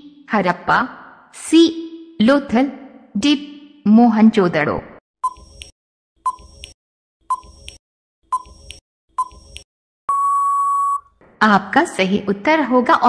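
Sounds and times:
long electronic beep: 10.1 - 11.1.

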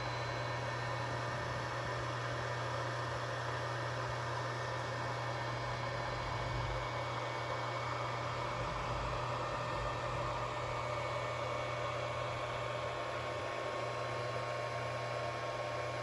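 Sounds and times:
fan whirring: 0.0 - 16.0.

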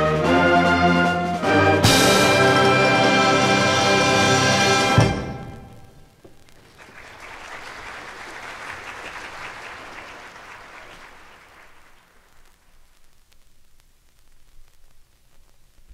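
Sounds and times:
audience applauding: 6.5 - 12.8.

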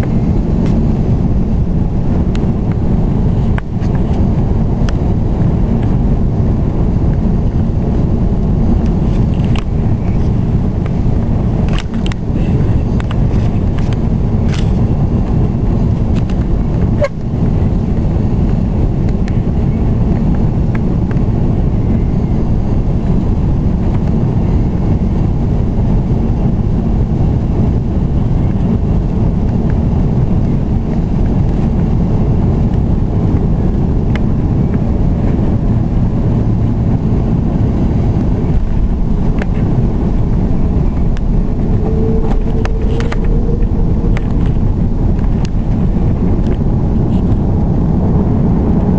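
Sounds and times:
jet engine rumble in cabin: 0.0 - 48.9
faint rising tone: 38.6 - 47.6.

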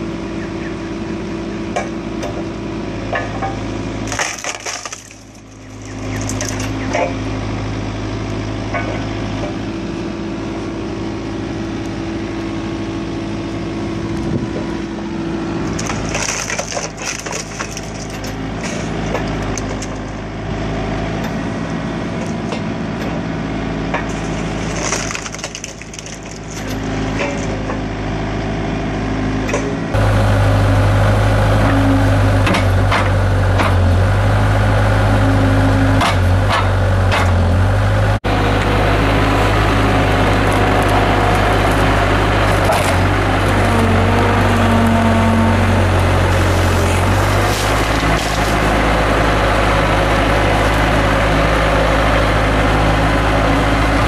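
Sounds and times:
log splitter engine drone: 0.0 - 54.0
loud machine engine drone: 0.0 - 54.0
wood cracking and splintering: 4.0 - 7.1, 15.6 - 20.2, 24.0 - 27.6, 40.2 - 51.2.

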